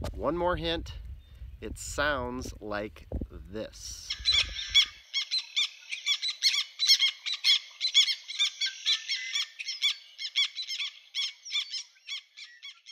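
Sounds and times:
tern calling: 0:03.8 - 0:12.9.

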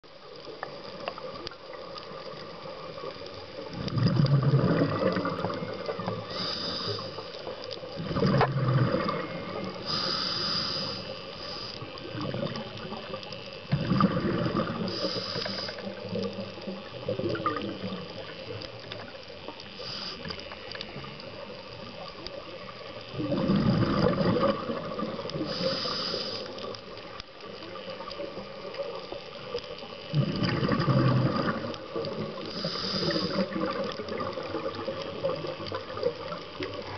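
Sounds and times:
exhaled bubbles surging: 0:02.1 - 0:07.1, 0:07.9 - 0:09.9, 0:11.8 - 0:19.2, 0:20.9 - 0:25.6, 0:30.0 - 0:36.9
regulator hissing inhalations: 0:06.2 - 0:07.5, 0:09.5 - 0:12.0, 0:14.9 - 0:16.0, 0:19.8 - 0:20.5, 0:25.4 - 0:26.7, 0:32.4 - 0:33.6.

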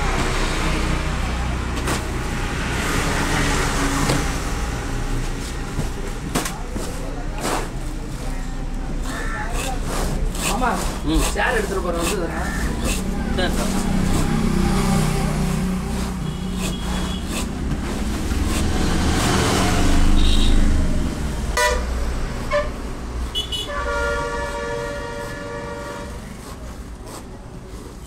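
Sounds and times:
vehicle engine rumble: 0:00.0 - 0:28.0
long horn blast: 0:21.6 - 0:26.3.

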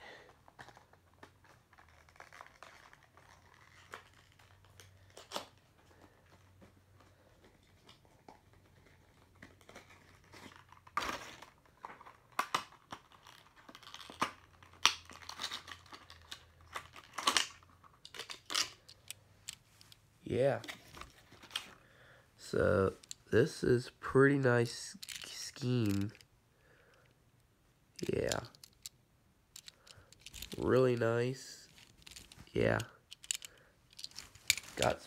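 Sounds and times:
packaging crinkling and tearing: 0:00.5 - 0:05.7, 0:08.6 - 0:19.0, 0:28.0 - 0:28.9.

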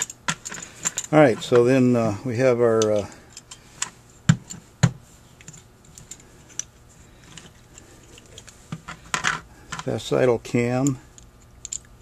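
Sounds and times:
small metal parts clicking: 0:00.0 - 0:01.7, 0:10.8 - 0:12.0.

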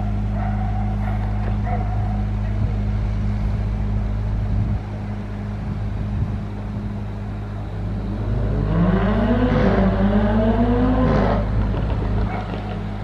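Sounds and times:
engine droning and revving: 0:00.0 - 0:13.0.

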